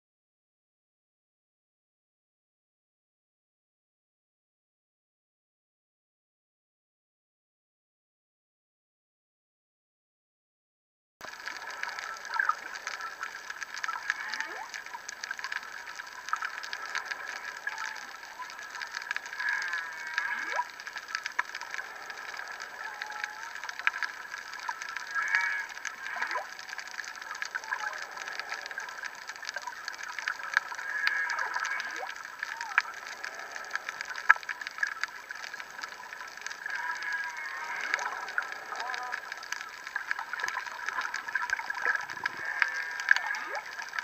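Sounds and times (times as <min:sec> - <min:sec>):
underwater crackling: 0:11.2 - 0:44.0
whale song underwater: 0:11.2 - 0:44.0.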